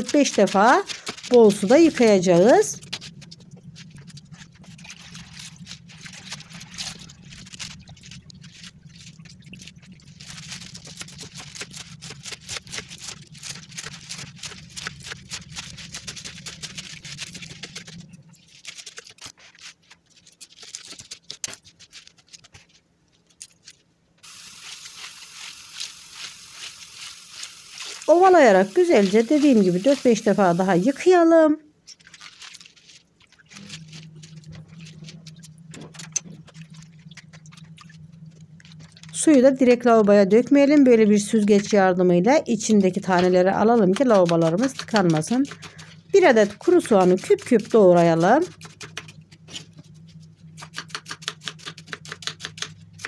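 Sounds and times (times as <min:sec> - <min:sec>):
low steady hum: 0:00.0 - 0:18.8, 0:22.8 - 0:32.0, 0:32.6 - 0:53.0
steady hiss: 0:24.2 - 0:31.1.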